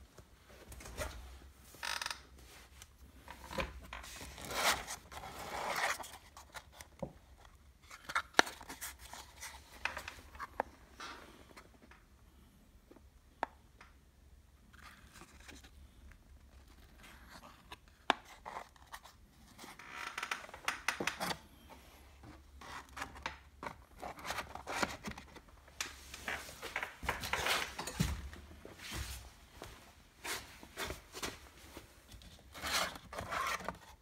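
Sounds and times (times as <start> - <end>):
cardboard boxes handled by hand: 21.2 - 34.0.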